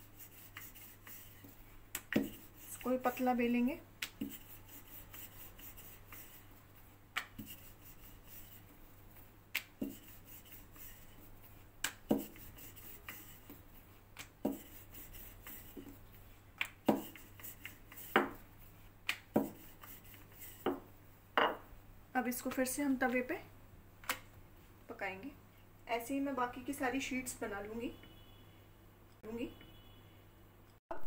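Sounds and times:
rolling pin knocking on surface: 0:12.0 - 0:12.4, 0:16.8 - 0:17.2, 0:18.1 - 0:18.4, 0:19.3 - 0:19.6, 0:20.6 - 0:21.6.

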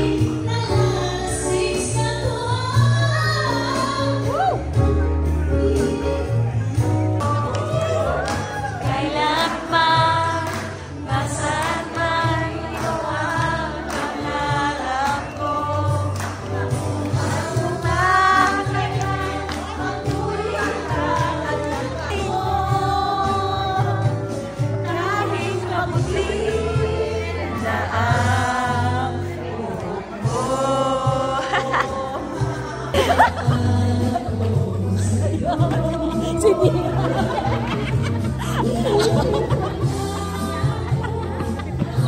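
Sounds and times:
bass line: 0:00.0 - 0:42.0
person singing: 0:14.0 - 0:42.0.

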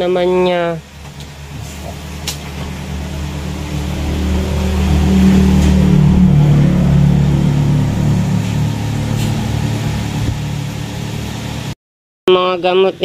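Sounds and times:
low mechanical hum: 0:00.0 - 0:11.8.

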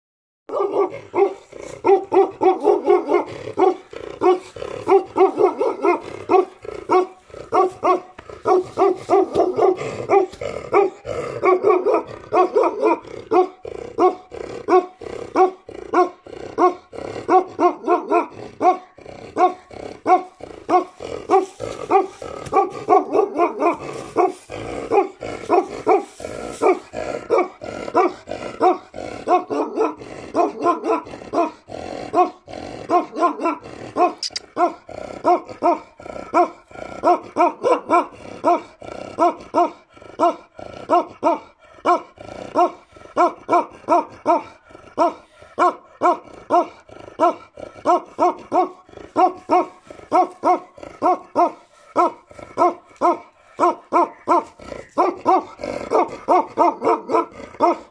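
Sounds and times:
dog barking: 0:00.5 - 0:57.9.

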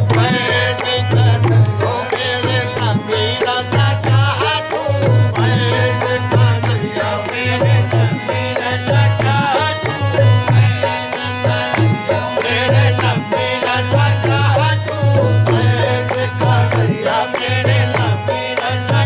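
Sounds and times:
hand claps: 0:00.0 - 0:19.0
harmonium: 0:00.0 - 0:19.0
person singing melismatically: 0:00.0 - 0:19.0.

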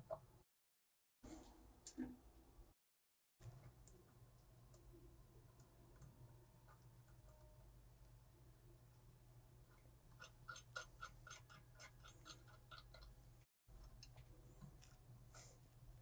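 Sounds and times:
low steady hum: 0:03.4 - 0:16.0.

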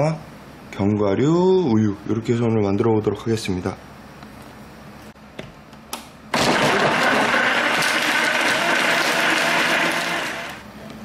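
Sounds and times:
blender running: 0:06.4 - 0:10.7.

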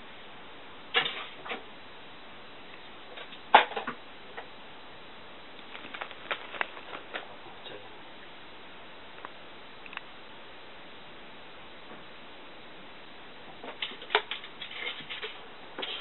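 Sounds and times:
paws tapping and scrabbling: 0:13.6 - 0:16.0.

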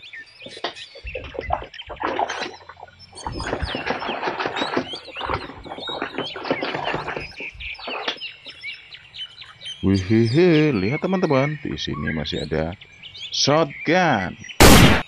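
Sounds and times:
small birds chirping: 0:00.0 - 0:14.9
rough rustling noise: 0:00.4 - 0:08.7.

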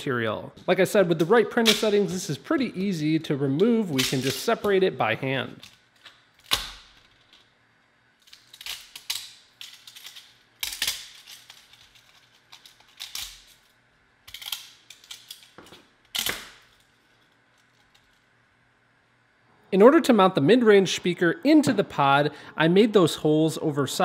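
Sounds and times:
plastic snapping and crackling: 0:03.9 - 0:04.8, 0:05.5 - 0:07.5, 0:08.2 - 0:13.6, 0:14.2 - 0:16.9.

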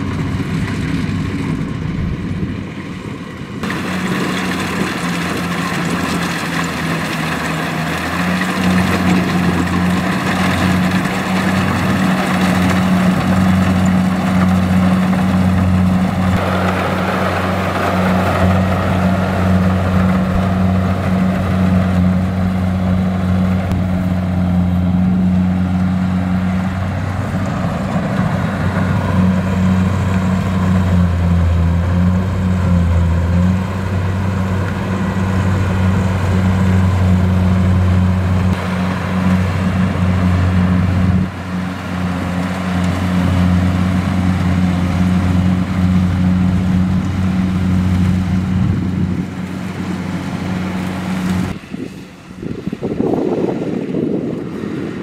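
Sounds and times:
diesel engine drone: 0:00.0 - 0:55.0
threshing machinery clatter: 0:03.6 - 0:54.8.

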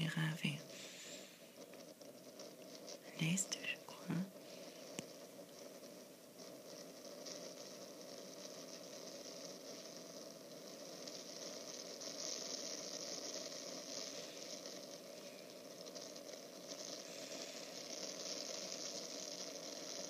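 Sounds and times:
steady rushing hiss: 0:00.0 - 0:20.0.

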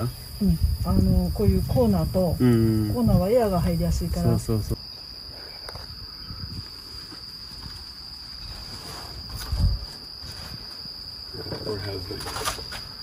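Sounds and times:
insect chorus: 0:00.0 - 0:13.0.

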